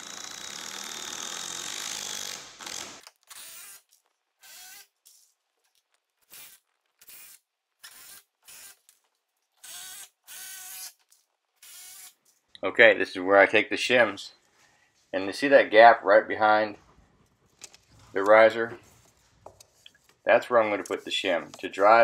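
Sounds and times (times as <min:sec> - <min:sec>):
cordless drill boring into wood: 0:00.0 - 0:03.8, 0:04.4 - 0:04.9, 0:06.3 - 0:08.8, 0:09.6 - 0:11.0, 0:11.6 - 0:12.2.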